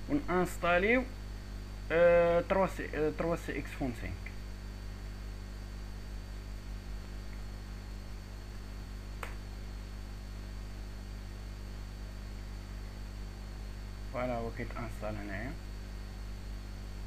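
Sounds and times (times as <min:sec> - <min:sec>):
electrical mains hum: 0:00.0 - 0:17.0
faint high whine and hiss: 0:00.0 - 0:17.0
sharp click: 0:09.2 - 0:09.4.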